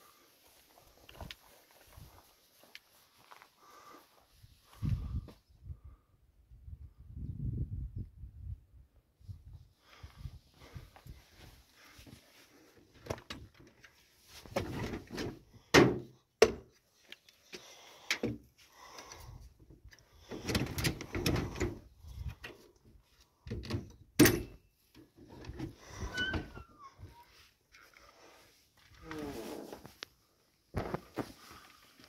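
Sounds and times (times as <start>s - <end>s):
door squeak: 26.0s - 27.3s.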